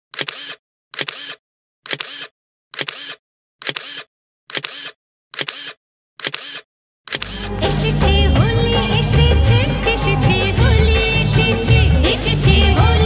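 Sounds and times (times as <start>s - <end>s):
camera shutter click and whir: 0.1s - 7.7s.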